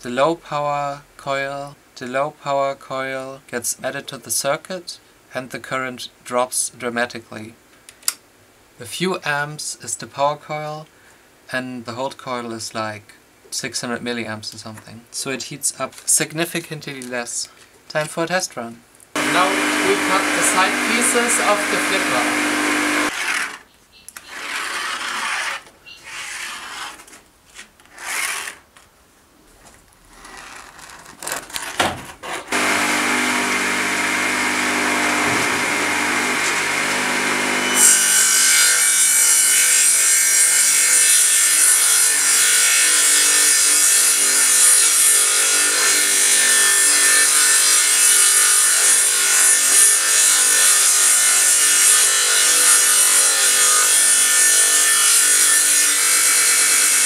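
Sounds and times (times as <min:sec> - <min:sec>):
table saw motor running: 0:19.2 - 0:23.1, 0:32.5 - 0:39.1
saw blade ripping through wood: 0:19.2 - 0:23.6, 0:24.2 - 0:27.2, 0:27.9 - 0:28.7, 0:30.1 - 0:39.8.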